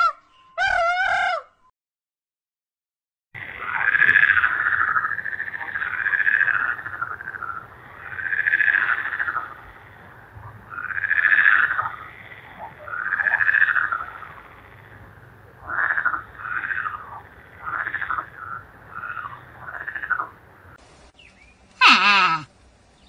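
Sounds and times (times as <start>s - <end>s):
frog croaking: 3.4s - 20.8s.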